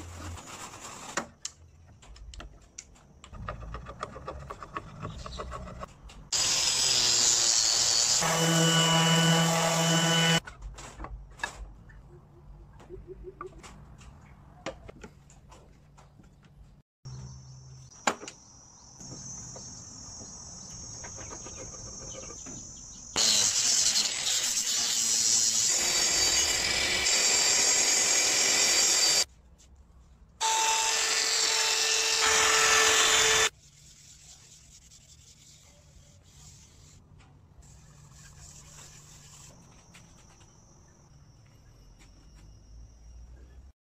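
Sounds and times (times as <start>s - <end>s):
angle grinder sanding wood: 6.4s - 10.4s, 23.2s - 29.3s, 30.4s - 34.1s.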